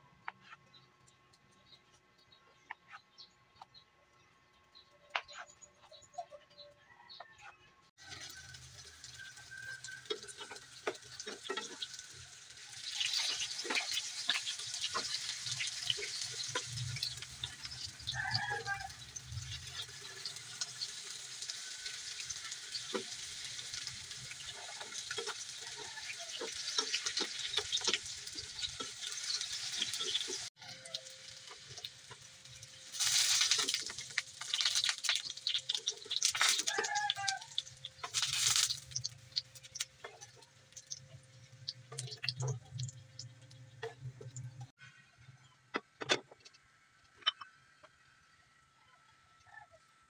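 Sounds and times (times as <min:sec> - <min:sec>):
tofu sizzling in oil: 0:08.0 - 0:44.7.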